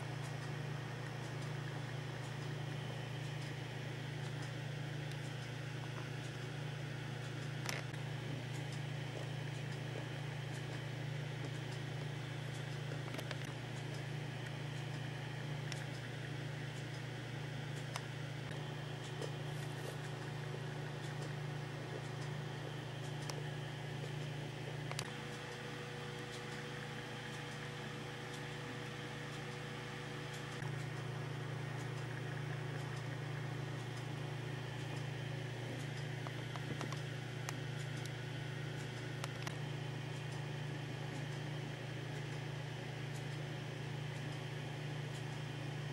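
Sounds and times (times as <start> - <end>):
low mechanical hum with hiss: 0.0 - 45.9.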